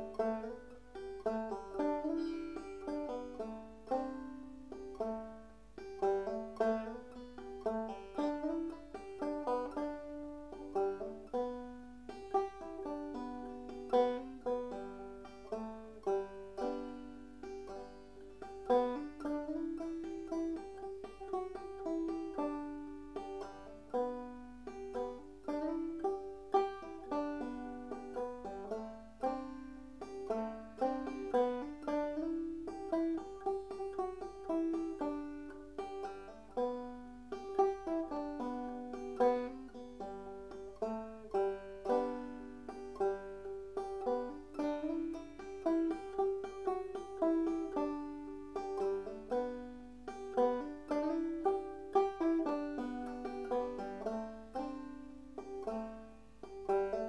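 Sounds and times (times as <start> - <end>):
banjo plucked notes: 0.0 - 57.0.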